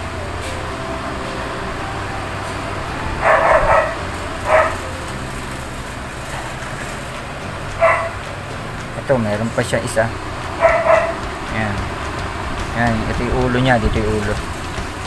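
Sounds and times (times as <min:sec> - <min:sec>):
steady background hum: 0:00.0 - 0:15.0
dog yelping: 0:03.2 - 0:05.0, 0:07.8 - 0:08.2, 0:10.6 - 0:11.2.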